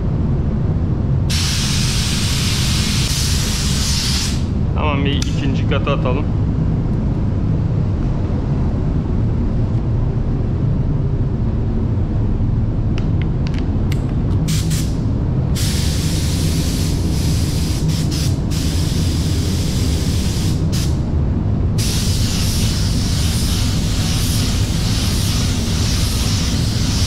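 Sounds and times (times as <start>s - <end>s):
steady low rumble: 0.0s - 27.0s
paint spray gun hissing: 1.3s - 4.5s, 15.6s - 21.0s, 21.8s - 27.0s.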